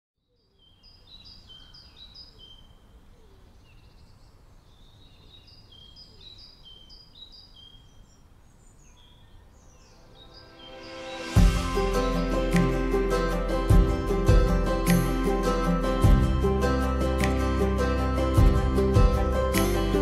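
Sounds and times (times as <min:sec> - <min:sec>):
birds singing: 0:00.2 - 0:13.4
music: 0:10.4 - 0:20.0.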